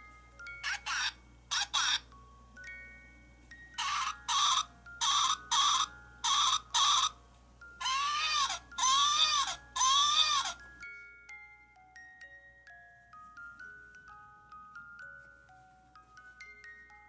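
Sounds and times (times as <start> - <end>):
toy doll crying: 0.4 - 2.2, 3.7 - 10.8
toy doll baby sounds: 0.4 - 2.9, 3.5 - 11.4.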